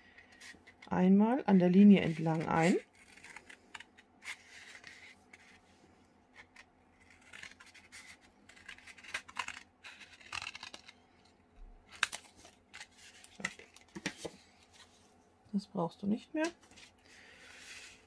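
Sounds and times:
scissors cutting cardboard: 2.0s - 5.6s, 6.3s - 11.0s.

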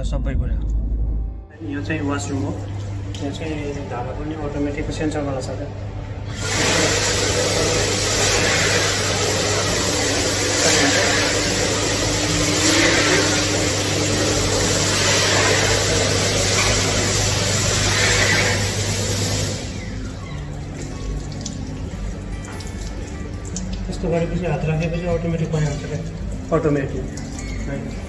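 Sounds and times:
electric hand dryer blowing: 6.2s - 28.0s.

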